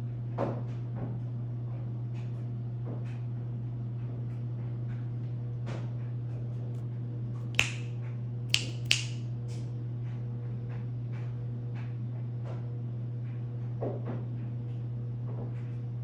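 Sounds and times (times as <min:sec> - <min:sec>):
sharp dry clicks: 0:07.6 - 0:07.9, 0:08.5 - 0:09.2.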